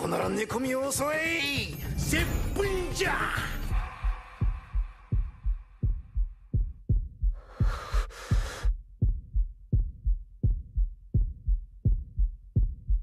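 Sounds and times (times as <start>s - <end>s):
heartbeat thumps: 3.7s - 13.0s.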